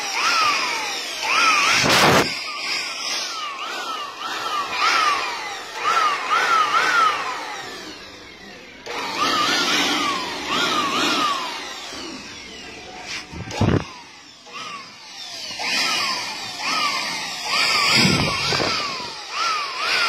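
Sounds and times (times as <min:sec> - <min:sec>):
electric blower motor bursts: 0:00.0 - 0:20.0.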